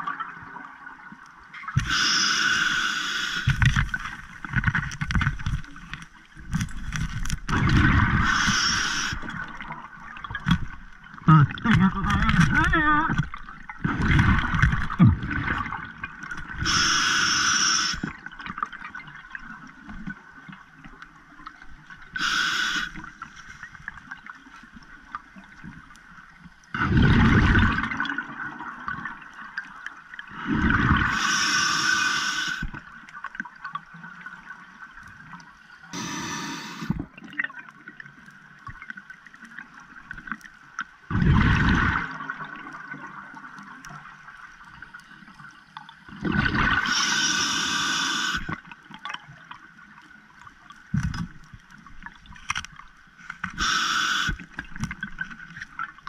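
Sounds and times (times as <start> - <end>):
faint steady hiss: 0.6 - 7.4, 19.4 - 26.8, 49.8 - 55.9
diver breathing through regulator: 1.8 - 3.7, 8.2 - 9.3, 16.6 - 18.1, 22.2 - 23.1, 30.3 - 32.7, 36.0 - 37.0, 46.8 - 48.6, 53.6 - 54.4.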